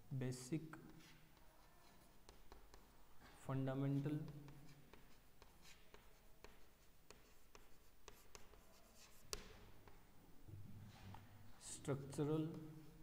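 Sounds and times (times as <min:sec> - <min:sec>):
chalk tapping on chalkboard: 0:00.7 - 0:03.1, 0:04.2 - 0:10.1.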